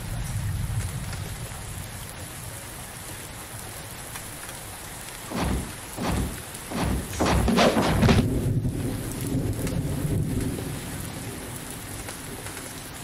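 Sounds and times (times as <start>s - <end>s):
steady rain: 0.0s - 13.0s
thunder rumbling: 5.2s - 12.8s.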